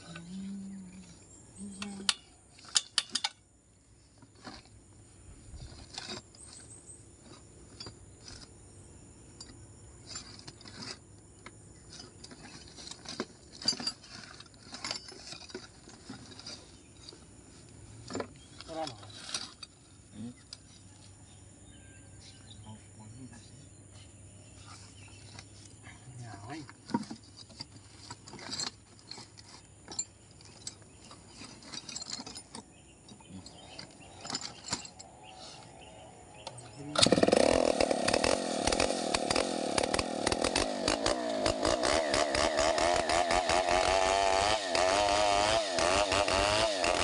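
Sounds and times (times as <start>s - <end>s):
clicks and rattles of handling: 9.4s - 17.2s, 18.0s - 19.8s, 26.6s - 35.2s.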